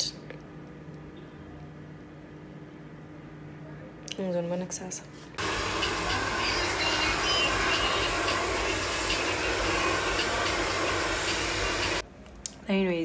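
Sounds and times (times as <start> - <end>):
hair dryer blowing: 5.4 - 12.0.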